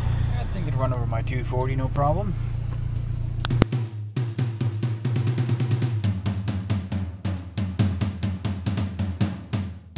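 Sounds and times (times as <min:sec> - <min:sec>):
low bass line: 0:00.0 - 0:03.9
fast drum beat: 0:03.5 - 0:09.9.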